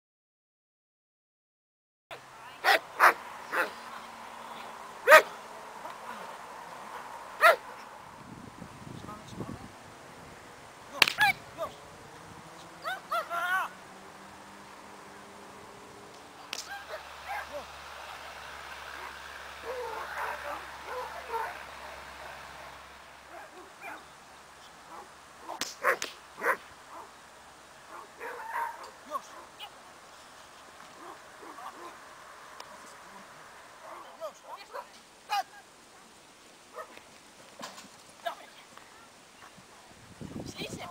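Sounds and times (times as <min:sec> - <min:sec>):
dog barking: 0:02.6 - 0:03.7, 0:05.1 - 0:05.4, 0:07.4 - 0:07.8, 0:19.0 - 0:21.6, 0:25.8 - 0:27.1, 0:27.9 - 0:29.5
sharp cracks: 0:10.9 - 0:11.4, 0:16.1 - 0:16.9, 0:25.5 - 0:26.7.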